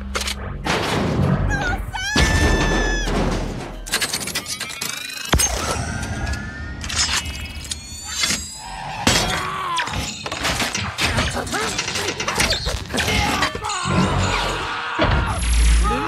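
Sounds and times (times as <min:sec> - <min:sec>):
film score: 0:00.0 - 0:16.0.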